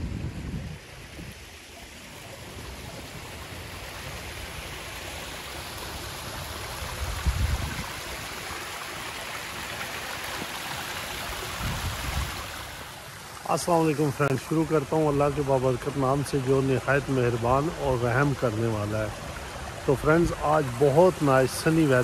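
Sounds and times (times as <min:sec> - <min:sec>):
wind buffeting microphone: 0:00.0 - 0:01.6, 0:06.8 - 0:08.2, 0:11.4 - 0:12.5
running water rushing: 0:00.0 - 0:22.0.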